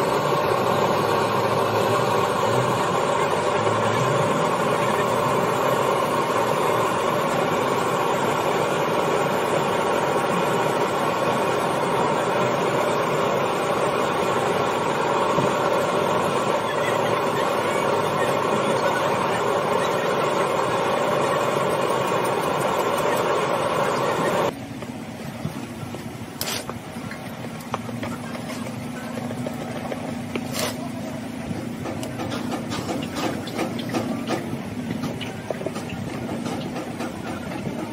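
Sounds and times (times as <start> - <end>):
low engine-like hum: 0.0 - 37.9
steady mechanical roar: 0.0 - 37.9
knife scraping plastic: 26.4 - 26.7.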